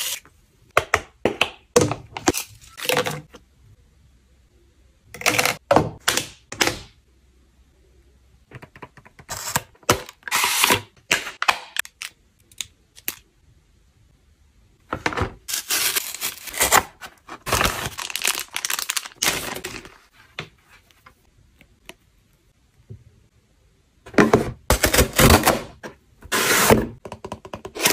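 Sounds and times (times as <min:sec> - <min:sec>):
scratchy plastic rustling: 0:15.5 - 0:20.9.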